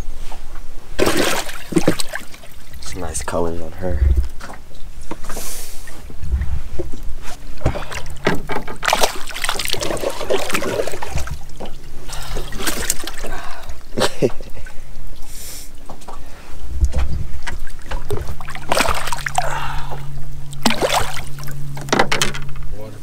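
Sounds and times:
water splashing: 1.0 - 3.0, 7.4 - 21.8.

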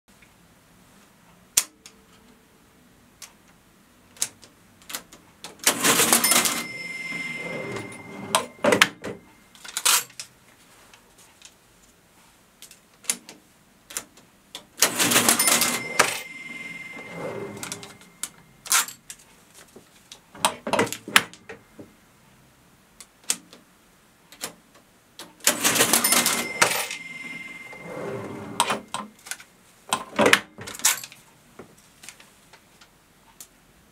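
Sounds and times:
cash register key clicks: 5.6 - 8.9, 14.8 - 17.9, 25.5 - 28.8
register mechanism clatter: 5.6 - 8.9, 14.8 - 18.0, 25.4 - 28.8
register clacks: 5.6 - 9.2, 14.8 - 18.3, 25.5 - 29.1
steady ringing tone: 5.8 - 9.6, 14.9 - 18.4, 25.6 - 29.0.

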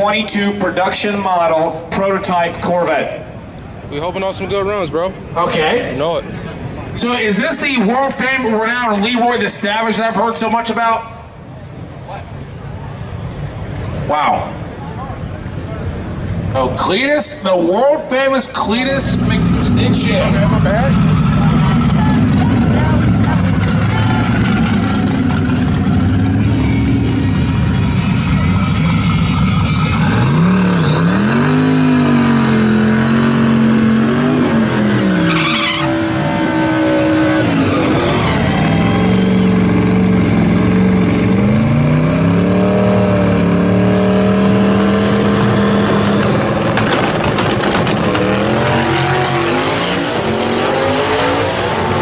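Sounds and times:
car engine revving: 18.7 - 52.0
tyre screech: 23.7 - 32.4, 33.1 - 40.2.

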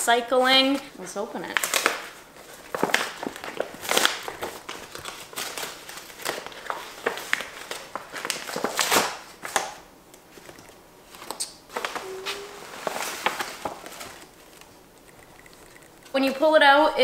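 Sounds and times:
paper bag rustling and crinkling: 1.5 - 9.7, 10.3 - 14.8.

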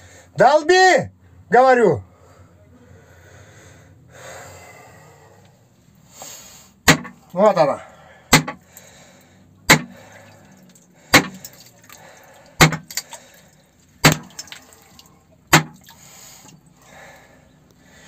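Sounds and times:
hammer knocking on steel rod: 8.4 - 8.6.

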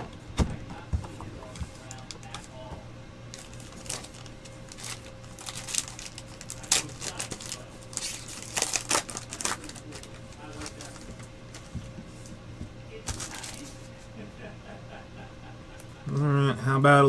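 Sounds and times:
foil wrapper and cards crinkling: 1.4 - 2.5, 3.3 - 11.7, 13.0 - 13.8.

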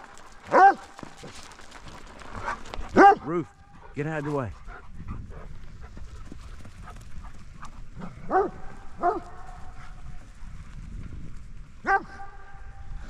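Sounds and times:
dog barking: 0.5 - 0.9, 2.4 - 3.3, 8.0 - 9.5, 11.8 - 12.5.

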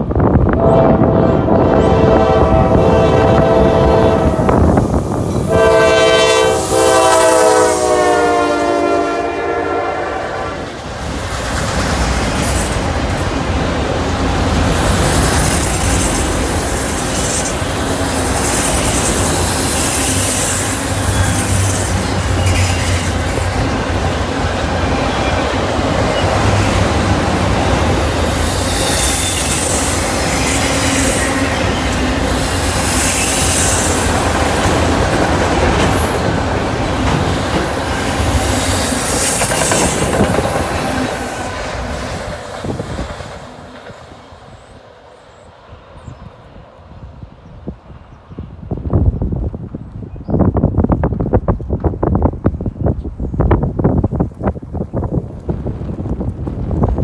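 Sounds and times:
train wheels rumbling on rails: 0.0 - 57.0
locomotive horn blasts: 0.6 - 4.7, 5.5 - 10.8.

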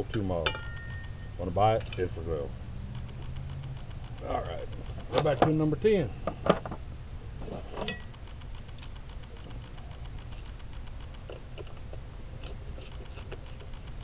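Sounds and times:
low hum: 0.0 - 14.0
ratchet wrench clicking: 0.5 - 5.7, 7.9 - 11.8.

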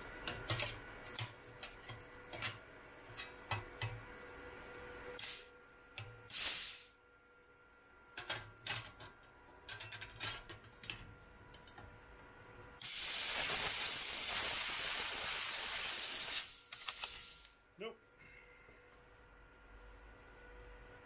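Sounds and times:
plasma torch air hiss: 5.2 - 5.5, 6.3 - 7.0, 12.8 - 17.6.

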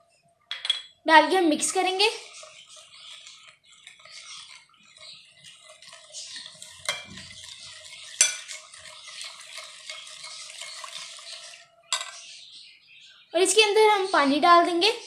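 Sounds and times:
metal spoon scraping a bowl: 2.2 - 12.3.

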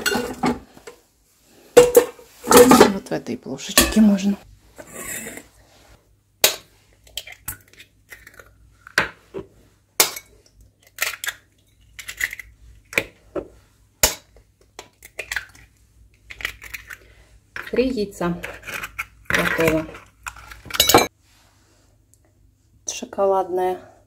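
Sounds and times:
eggshells crackling open: 7.1 - 8.6.

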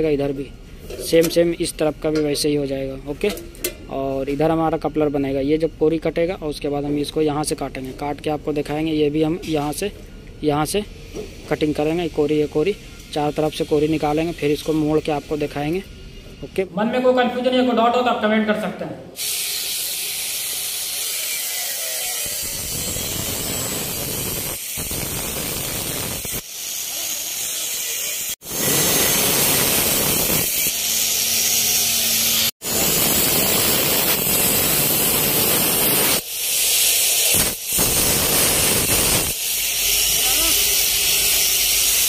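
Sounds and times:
angle grinder cutting steel: 19.2 - 42.0.

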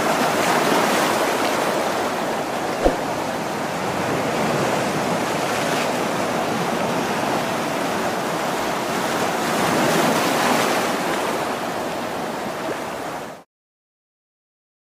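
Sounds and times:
sea water washing against rocks: 0.0 - 6.0
wind on microphone: 2.7 - 5.3.

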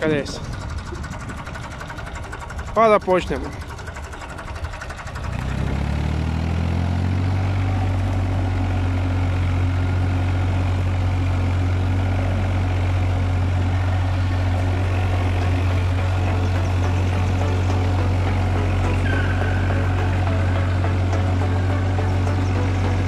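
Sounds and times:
tractor diesel engine running: 0.0 - 23.0.

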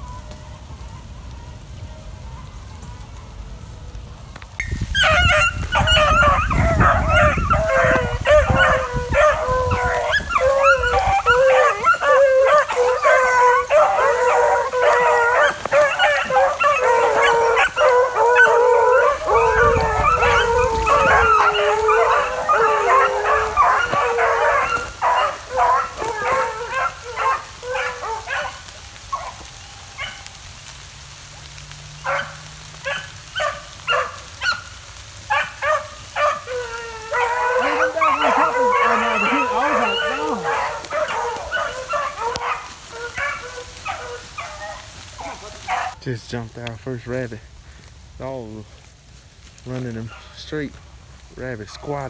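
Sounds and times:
dogs baying and howling: 0.0 - 30.8, 31.6 - 46.0, 49.7 - 50.7, 51.6 - 52.0
dogs barking and yelping: 4.8 - 30.8, 32.0 - 46.0.

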